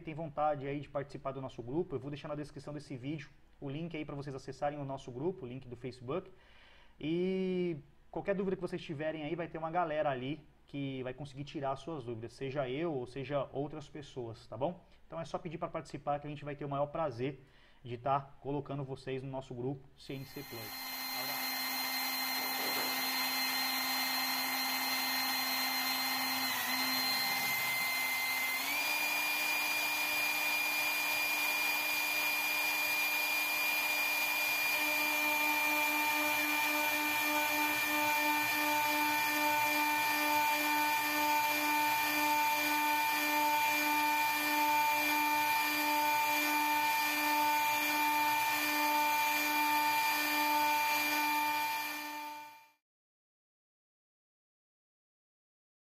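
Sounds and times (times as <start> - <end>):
metal cutting noise: 20.2 - 52.6
milling spindle whine: 20.2 - 52.6.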